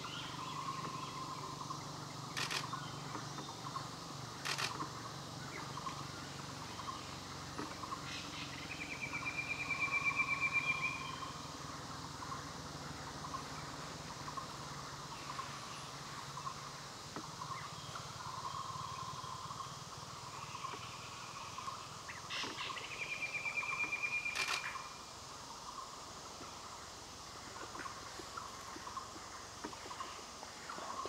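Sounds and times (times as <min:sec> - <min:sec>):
forest wildlife chorus: 0:00.0 - 0:31.0
sharp click: 0:23.8 - 0:24.8.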